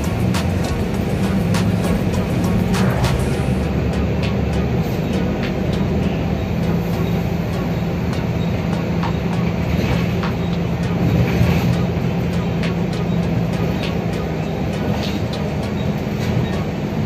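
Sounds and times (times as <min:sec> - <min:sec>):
bus engine drone and road noise: 0:00.0 - 0:17.0.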